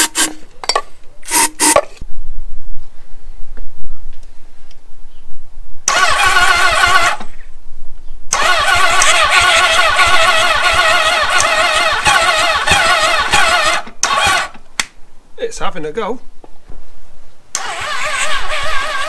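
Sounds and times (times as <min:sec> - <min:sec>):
engine starter cranking: 0:00.0 - 0:00.4, 0:01.3 - 0:01.9, 0:05.9 - 0:07.4, 0:08.3 - 0:14.6, 0:17.5 - 0:19.0.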